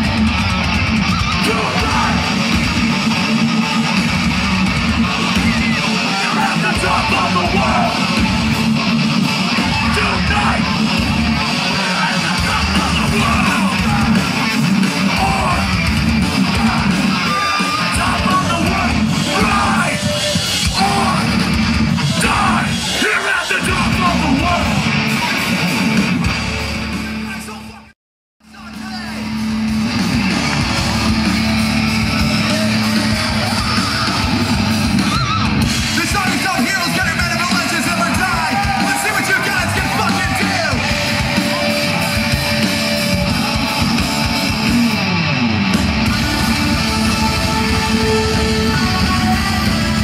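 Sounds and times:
rock band playing live: 0:00.0 - 0:50.0
person shouting over music: 0:01.0 - 0:02.6, 0:05.0 - 0:08.4, 0:09.5 - 0:25.5, 0:30.5 - 0:45.0.

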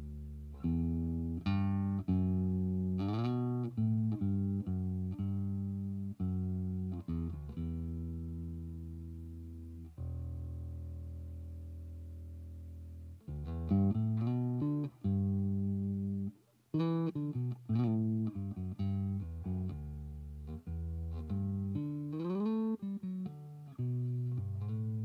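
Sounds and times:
electric bass plucked notes: 0:00.0 - 0:25.0.

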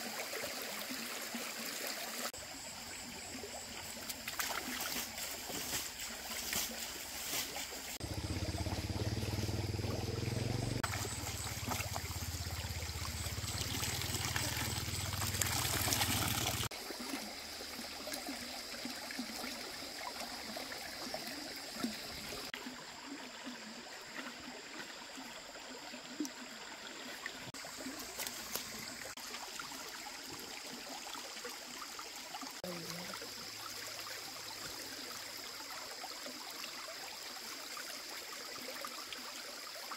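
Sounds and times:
water trickling and flowing: 0:00.0 - 0:39.9.

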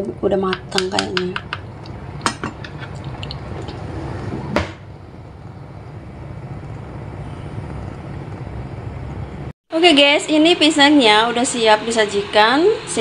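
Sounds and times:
pot simmering: 0:00.0 - 0:09.1
steady low hum: 0:00.0 - 0:13.0.

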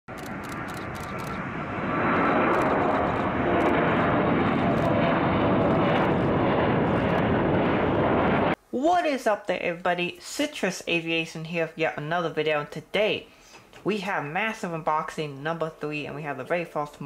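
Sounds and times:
airplane engine rush with whine: 0:00.1 - 0:08.6.

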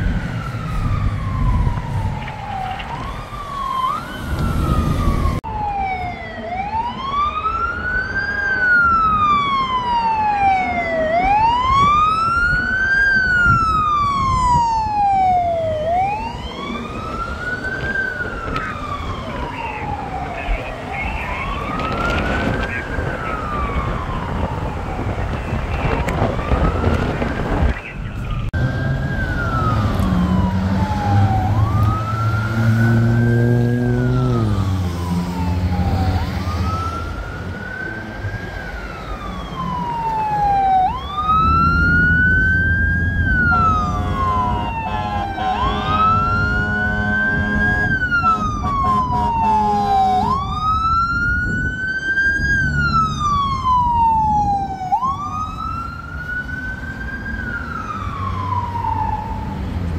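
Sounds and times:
siren wailing: 0:00.0 - 0:59.9
truck engine rumble: 0:00.0 - 0:59.9
deep horn: 0:43.4 - 0:50.3.

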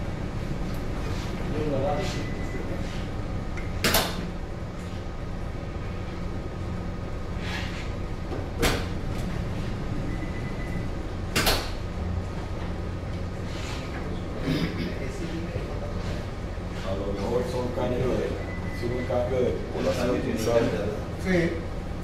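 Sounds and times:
ship machinery hum: 0:00.0 - 0:22.0.

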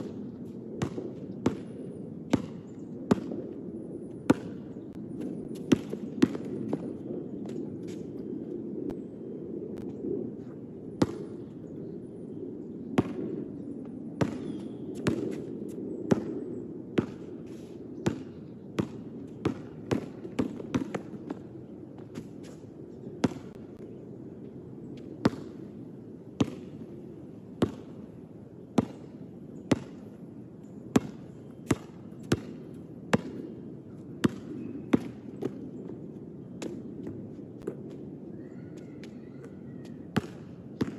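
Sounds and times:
basketball bouncing on hard court: 0:31.0 - 0:33.4.

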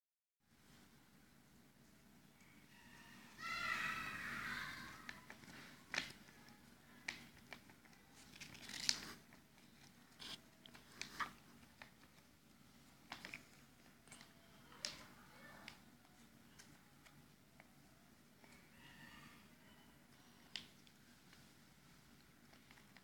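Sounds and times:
paper rustling and crinkling: 0:05.0 - 0:14.3.

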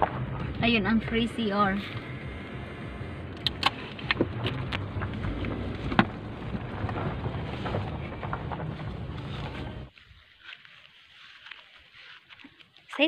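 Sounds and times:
rumble of tyres and engine: 0:00.0 - 0:09.9
sharp clicks and knocks: 0:03.3 - 0:09.6.

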